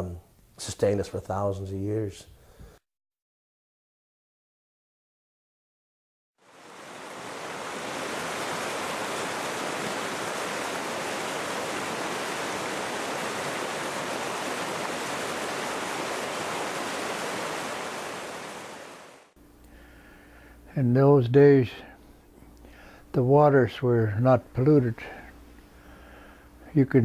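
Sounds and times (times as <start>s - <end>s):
river water rushing: 6.4s - 19.3s.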